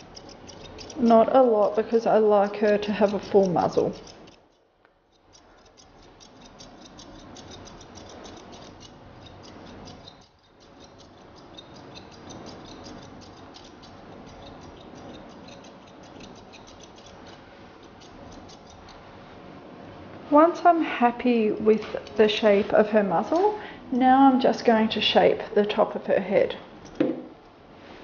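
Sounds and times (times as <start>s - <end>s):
scissors snipping hair: 2.4s - 4.5s, 23.2s - 23.5s.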